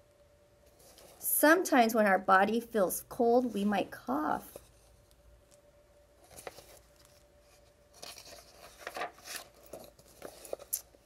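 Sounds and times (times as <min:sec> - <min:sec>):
paper pages rustling: 0:00.7 - 0:01.2, 0:06.2 - 0:11.0.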